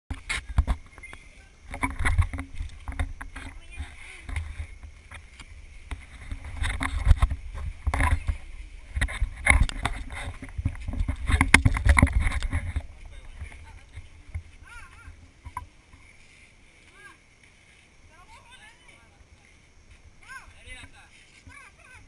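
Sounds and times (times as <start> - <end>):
camera rubbing and bumping: 0.1 - 16.0
people's voices: 0.3 - 10.9, 12.2 - 22.0.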